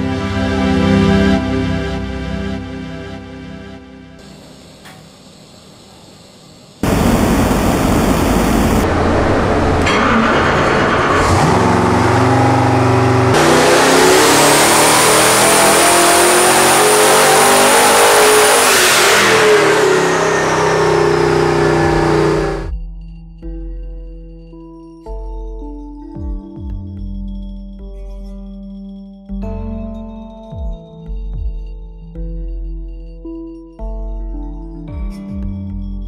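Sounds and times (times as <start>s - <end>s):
engine revving at full throttle: 6.8s - 22.7s
high turbo whistle: 6.8s - 22.7s.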